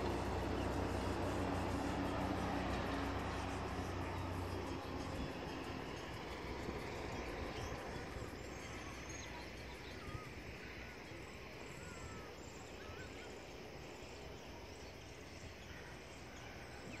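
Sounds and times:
wind rumbling on microphone: 0:00.0 - 0:12.6
bird chirps: 0:03.3 - 0:17.0.

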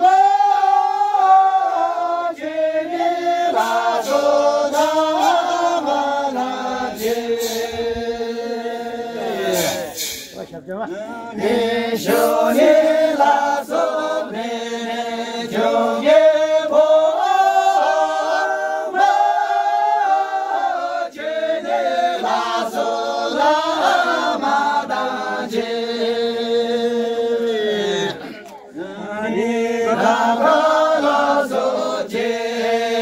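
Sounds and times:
men singing unaccompanied: 0:00.0 - 0:10.0, 0:10.9 - 0:33.0
person breathing: 0:09.6 - 0:10.4.

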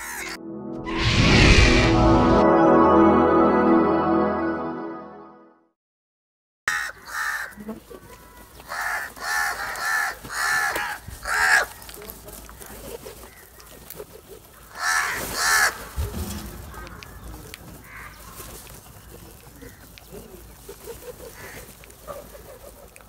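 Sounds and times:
crows cawing: 0:00.0 - 0:00.4, 0:06.7 - 0:12.0, 0:12.6 - 0:13.9, 0:14.5 - 0:20.0, 0:21.2 - 0:22.2.

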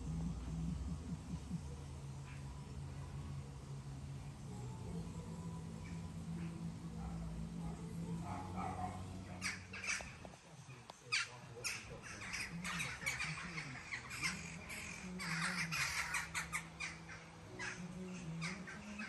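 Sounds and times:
crows cawing: 0:09.3 - 0:10.3, 0:11.1 - 0:19.0.

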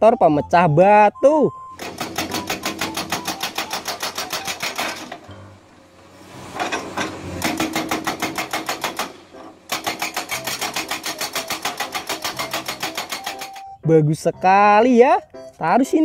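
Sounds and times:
hydraulic breaker hammering rock: 0:01.8 - 0:13.8.

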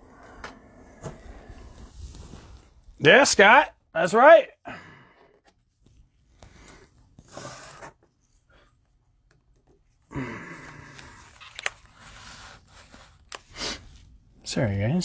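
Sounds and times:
plastic wrappers crinkling: 0:11.0 - 0:12.0.

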